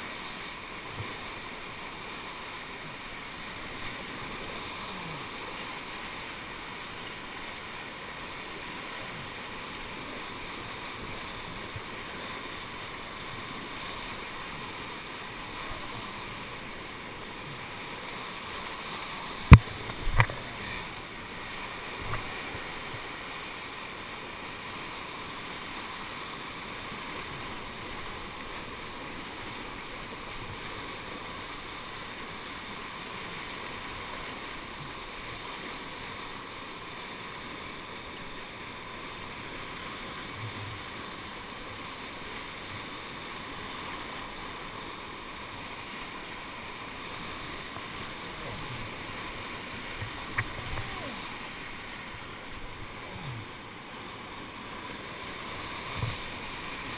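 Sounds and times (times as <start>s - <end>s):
whitewater churning: 0.0s - 56.9s.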